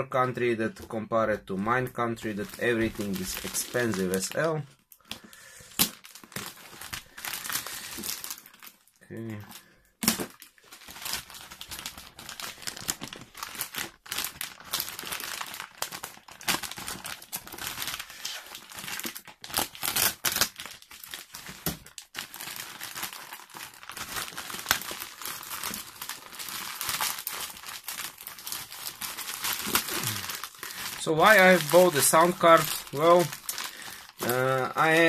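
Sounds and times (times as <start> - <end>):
plastic bag crackling rustle: 2.2 - 4.5, 10.2 - 35.0
plastic mailer tearing: 2.2 - 4.5, 10.0 - 35.0.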